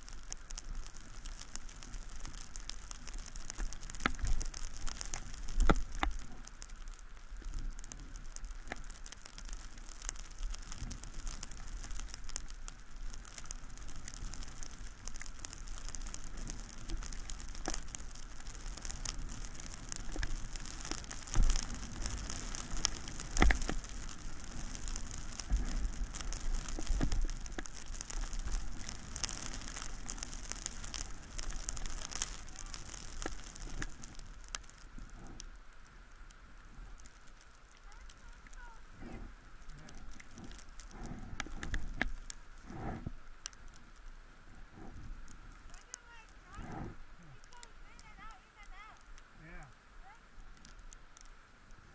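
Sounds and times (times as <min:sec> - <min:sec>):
skis sliding over snow: 0:00.0 - 0:50.9
crackle: 0:00.0 - 0:51.9.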